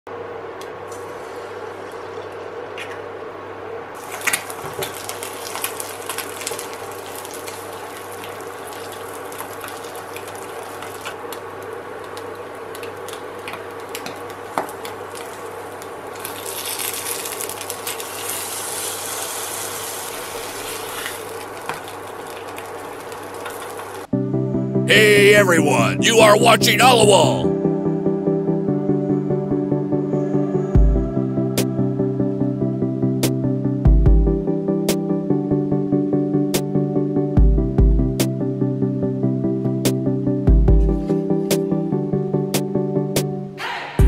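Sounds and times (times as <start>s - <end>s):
egg sizzling in oil: 4.0s - 11.2s, 14.5s - 24.0s.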